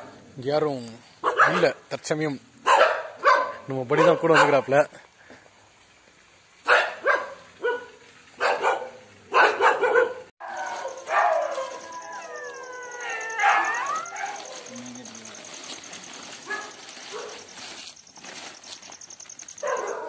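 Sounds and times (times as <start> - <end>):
dog barking: 1.2 - 1.8, 2.6 - 4.7, 6.6 - 14.8, 16.4 - 17.5, 19.6 - 20.0
dog whining and yelping: 9.4 - 17.5.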